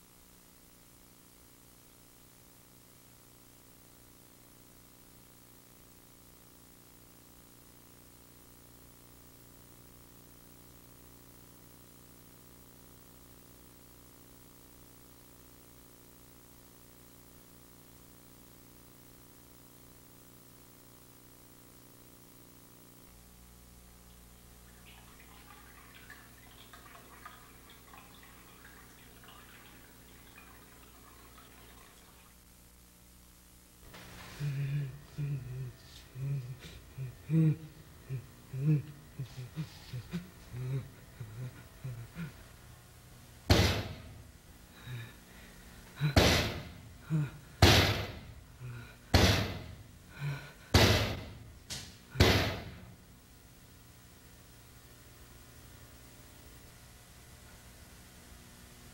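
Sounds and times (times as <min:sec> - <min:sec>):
low hum: 0:23.1 - 0:47.6
small ticks and drip-like plinks: 0:24.1 - 0:32.0
fist pounding on a door: 0:43.5 - 0:44.0, 0:46.1 - 0:46.8, 0:47.6 - 0:48.2, 0:49.1 - 0:49.8, 0:50.7 - 0:51.4, 0:52.2 - 0:52.8.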